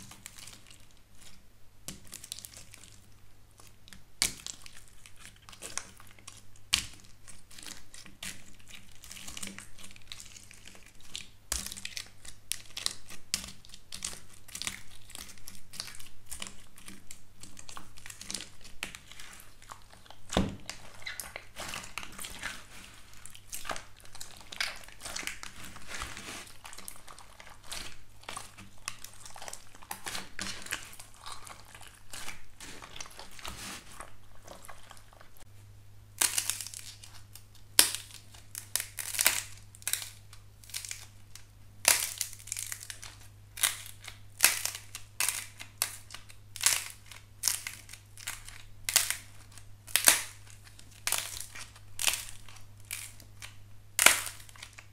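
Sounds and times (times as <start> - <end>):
slime crackling and crinkling: 0.0 - 35.5, 36.2 - 54.9.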